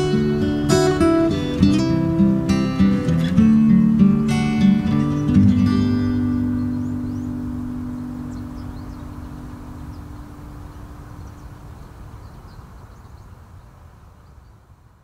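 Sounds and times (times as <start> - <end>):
guitar chord: 0.0 - 10.0
background hiss and low rumble: 0.0 - 15.0.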